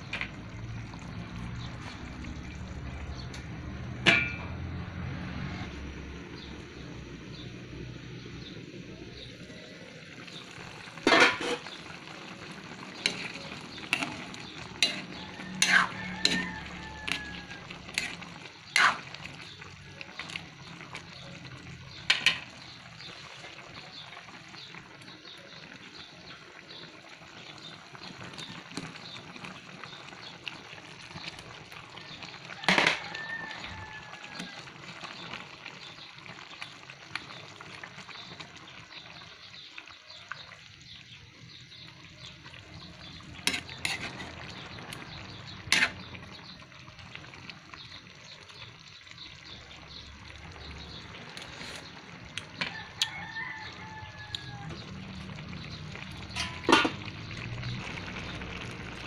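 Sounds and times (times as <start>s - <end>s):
metal utensils clanking on a pan: 4.0s - 4.7s, 10.8s - 19.6s, 21.9s - 22.8s, 32.6s - 33.2s, 43.2s - 44.7s, 45.6s - 46.4s, 56.1s - 57.2s
sauce bubbling and hissing: 5.3s - 59.0s.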